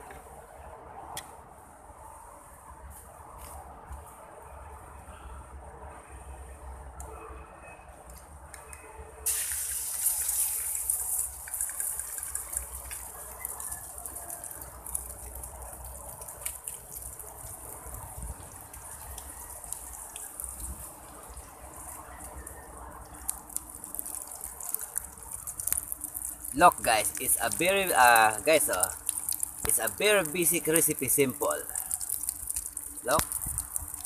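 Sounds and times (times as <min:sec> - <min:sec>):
egg sizzling in hot oil: 0:09.2 - 0:34.0
oil crackles: 0:09.2 - 0:34.0.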